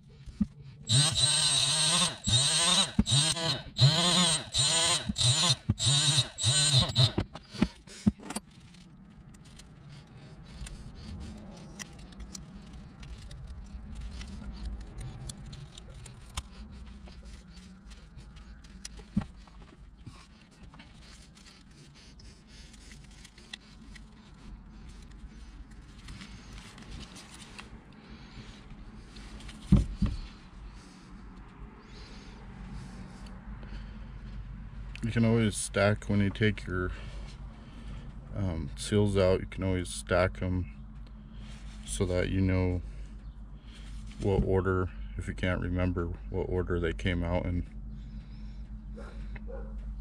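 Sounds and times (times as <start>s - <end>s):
hand tools clicking and scraping: 0.2s - 27.8s.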